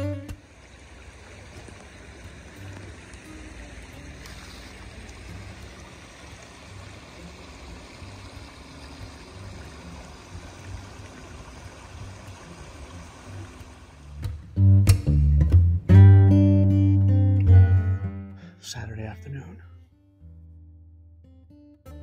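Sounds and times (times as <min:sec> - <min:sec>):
stream trickling over rocks: 0:00.0 - 0:14.6.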